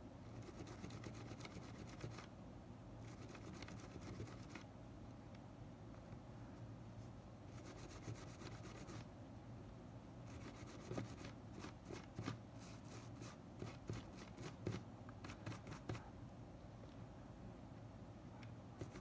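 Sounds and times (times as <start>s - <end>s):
cotton swab scratchy rubbing: 0.3s - 2.3s, 3.0s - 4.6s, 7.5s - 9.1s, 10.3s - 16.1s, 18.8s - 19.0s.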